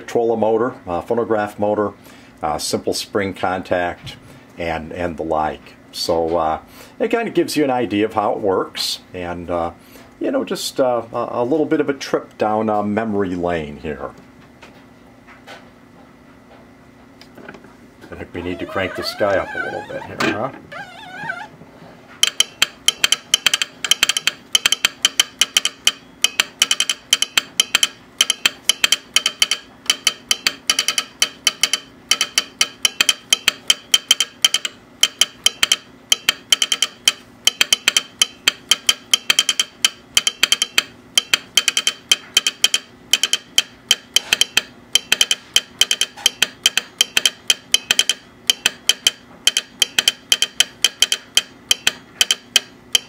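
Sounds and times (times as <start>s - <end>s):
faint steady hum: 0.0s - 53.0s
telegraph sounder clicking: 22.2s - 53.0s.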